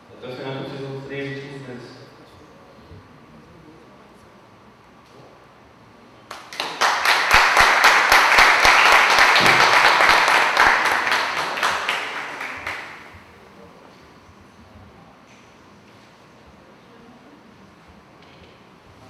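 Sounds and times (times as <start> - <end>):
audience applauding: 6.3 - 13.2.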